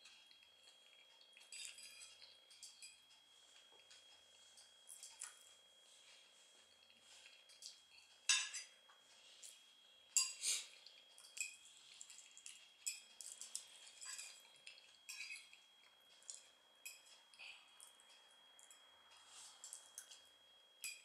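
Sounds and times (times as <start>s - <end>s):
soft chewing: 0.0s - 8.3s, 8.9s - 21.0s
fork clinking on a plate: 1.4s - 3.0s, 7.5s - 8.8s, 10.2s - 10.4s, 12.8s - 14.5s, 15.1s - 15.6s, 20.8s - 21.0s.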